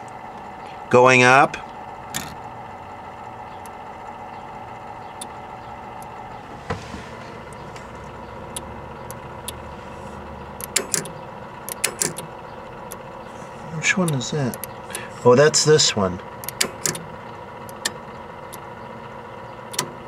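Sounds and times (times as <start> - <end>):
steady hum and hiss: 0.0 - 20.0
relay clicking: 10.6 - 13.0, 16.4 - 18.7
faint scattered clicks: 14.0 - 15.0.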